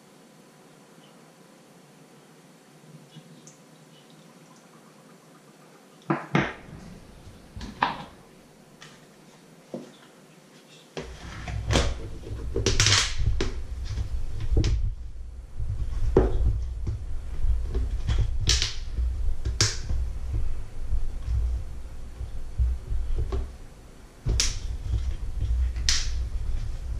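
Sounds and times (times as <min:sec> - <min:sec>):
low uneven rumbling throb: 0:06.6 - 0:07.8, 0:11.1 - 0:26.9.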